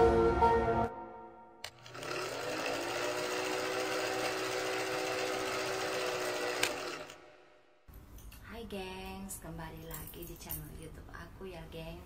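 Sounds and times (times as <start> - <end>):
film projector rattle and whir: 1.7 - 7.3.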